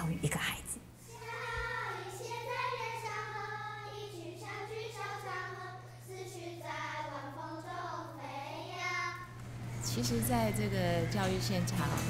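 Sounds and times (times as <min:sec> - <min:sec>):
steady low hum: 0:00.0 - 0:12.0
children singing: 0:01.1 - 0:09.2.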